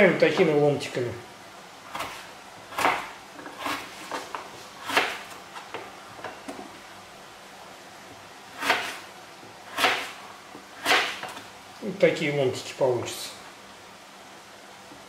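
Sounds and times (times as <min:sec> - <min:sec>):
knife slicing potato on board: 0:01.9 - 0:05.4, 0:08.6 - 0:09.1, 0:09.7 - 0:10.2, 0:10.8 - 0:11.4.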